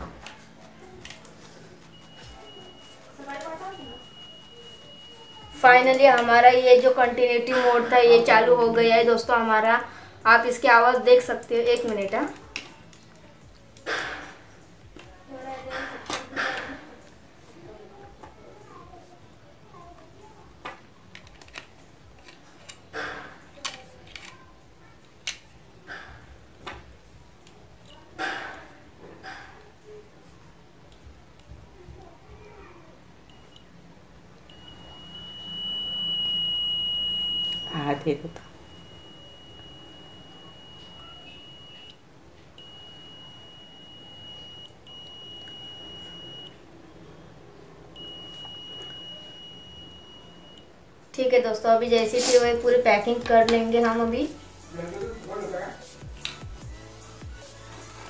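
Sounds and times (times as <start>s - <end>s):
multimeter beeper tone: 1.9s - 5.7s, 33.3s - 33.6s, 34.5s - 42.0s, 42.6s - 46.6s, 48.0s - 50.7s.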